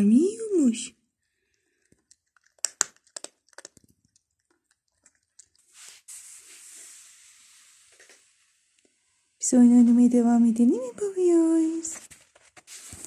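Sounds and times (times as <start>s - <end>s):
cat chewing string: 1.4s - 5.8s
rustling hiss: 5.6s - 8.8s.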